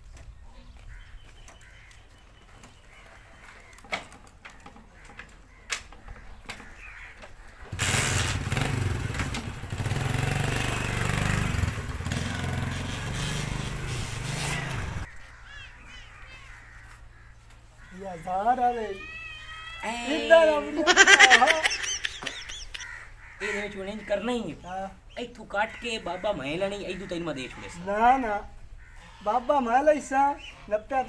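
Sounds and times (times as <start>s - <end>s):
small motorcycle engine running: 7.7s - 15.1s.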